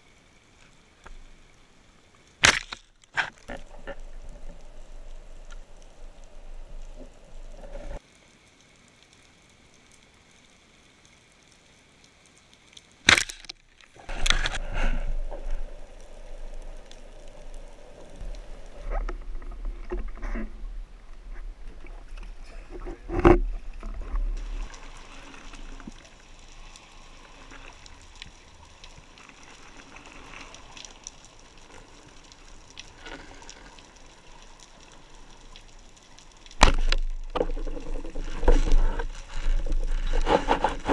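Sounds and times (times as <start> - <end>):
soft underwater hiss: 0.0 - 40.9
water sloshing and splashing: 13.0 - 40.9
rough rubbing and scraping: 14.0 - 16.4, 18.2 - 21.5, 36.7 - 40.9.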